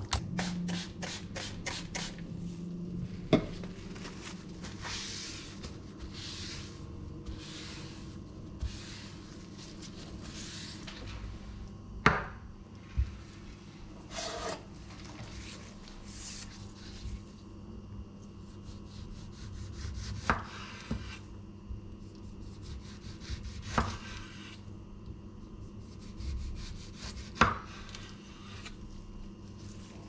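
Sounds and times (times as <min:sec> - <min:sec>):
knife sawing through tomato: 0:14.1 - 0:14.6, 0:18.5 - 0:20.8, 0:22.4 - 0:24.6, 0:25.8 - 0:27.4.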